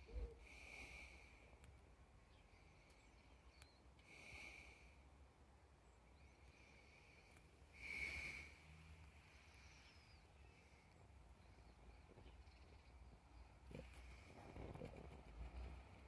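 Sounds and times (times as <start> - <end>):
faint hissing swells: 6.2 - 12.1.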